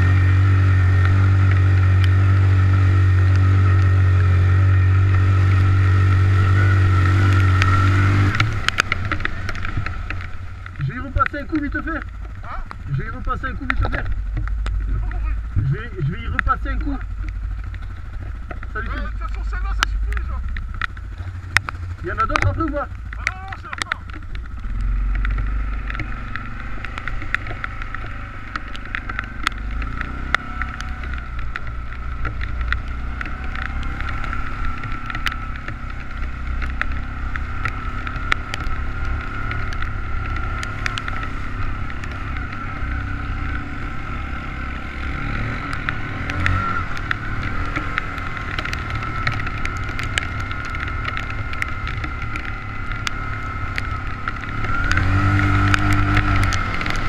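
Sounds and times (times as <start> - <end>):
quad bike engine running: 0.0 - 57.0
sharp ticks: 5.0 - 57.0.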